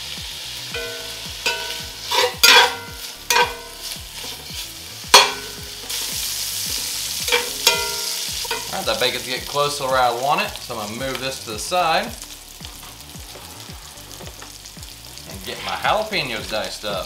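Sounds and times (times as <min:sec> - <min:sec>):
bacon sizzling in a skillet: 0:00.0 - 0:17.0
metal spatula scraping pan: 0:00.8 - 0:09.1.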